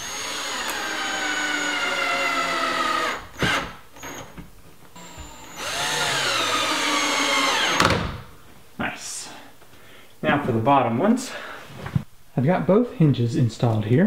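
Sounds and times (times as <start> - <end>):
cordless drill driving screws: 0.0 - 4.3, 5.0 - 8.0.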